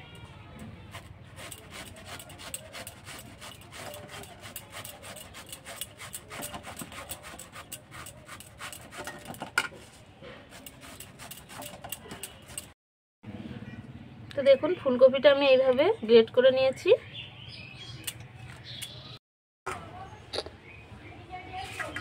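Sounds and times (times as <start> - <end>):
cauliflower scraping on grater: 0.9 - 9.4, 10.4 - 12.8.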